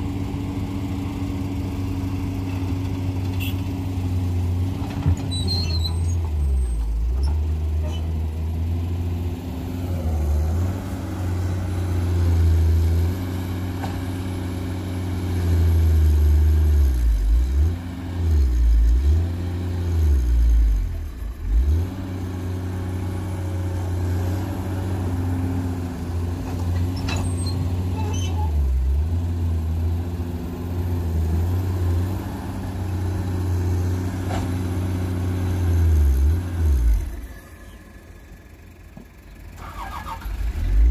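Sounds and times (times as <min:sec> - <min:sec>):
excavator diesel engine labouring: 0:00.0 - 0:40.9.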